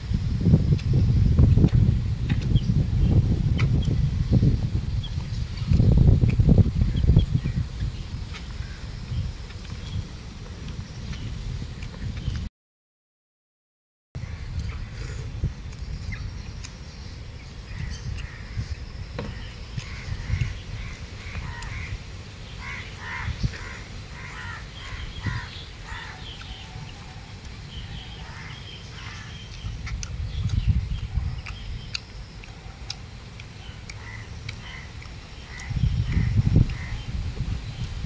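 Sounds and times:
low steady rumble: 0:00.0 - 0:12.5, 0:14.2 - 0:38.0
crows cawing: 0:17.8 - 0:22.0, 0:22.6 - 0:26.3, 0:28.2 - 0:29.4, 0:34.0 - 0:37.0.

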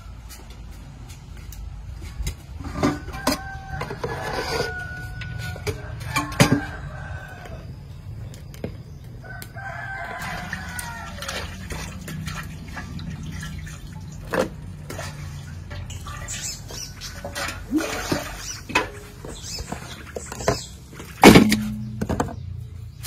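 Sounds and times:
rooster crowing: 0:02.9 - 0:07.8, 0:09.2 - 0:11.6
water splashing from metal basin: 0:10.0 - 0:23.0
washing intestines by hand: 0:10.1 - 0:21.2.

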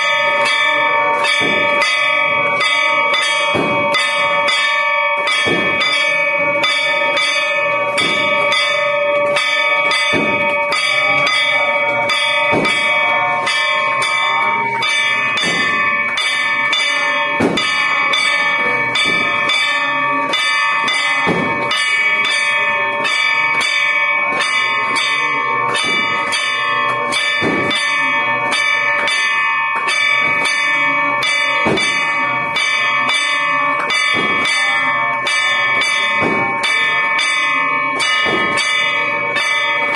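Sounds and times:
metal gong struck with stick: 0:00.0 - 0:23.6.

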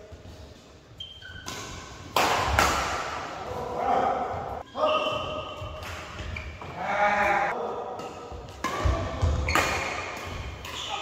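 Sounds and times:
shoes squeaking on court: 0:01.0 - 0:01.9, 0:04.6 - 0:06.8, 0:09.1 - 0:11.0
racket striking shuttlecock: 0:01.4 - 0:03.2, 0:08.0 - 0:10.8.

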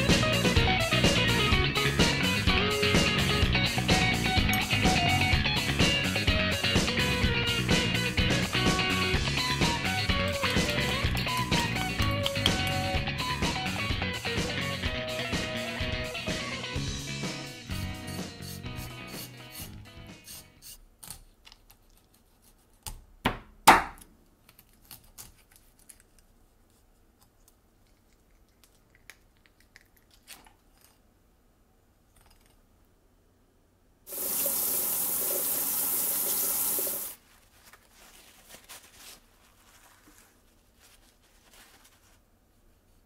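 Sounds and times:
paper towels rustling: 0:36.3 - 0:43.0.

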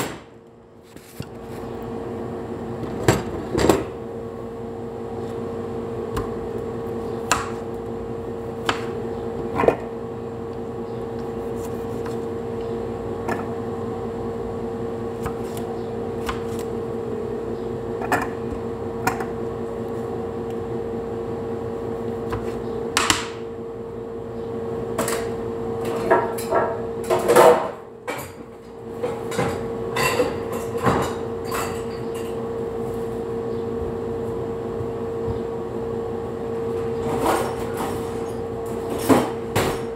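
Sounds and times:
appliance hum: 0:00.0 - 0:39.9
knife cutting tomatoes: 0:11.2 - 0:12.3.

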